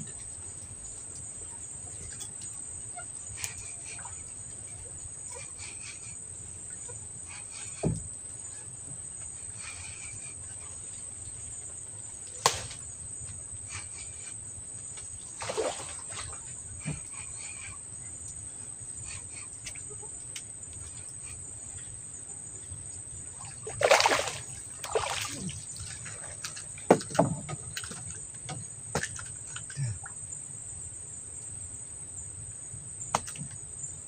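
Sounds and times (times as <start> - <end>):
fish splashing at water surface: 23.4 - 26.1.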